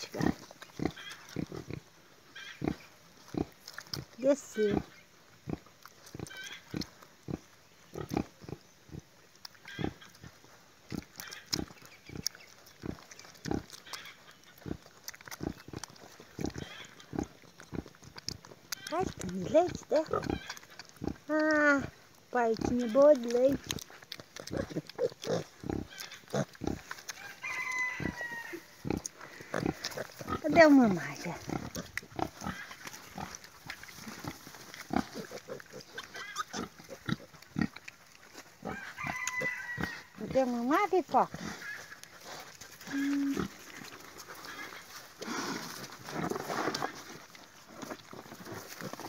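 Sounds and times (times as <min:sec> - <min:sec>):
pigs grunting: 0:18.7 - 0:26.9, 0:28.0 - 0:40.5, 0:41.1 - 0:49.0
piglet squeak: 0:36.0 - 0:36.7
sow grunting: 0:42.8 - 0:43.7.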